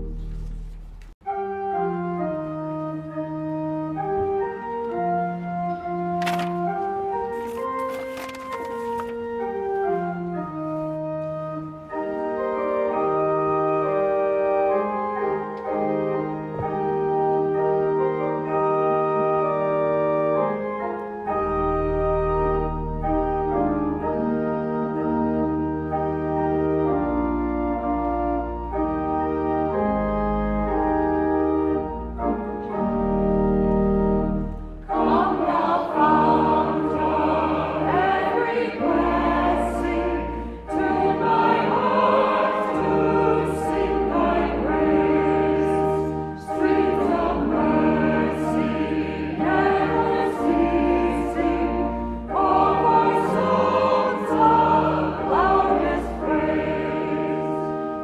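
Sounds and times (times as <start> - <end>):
organ pedal bass notes: 0.0 - 7.3, 9.2 - 58.0
church organ chords: 0.0 - 58.0
choir singing: 34.8 - 58.0.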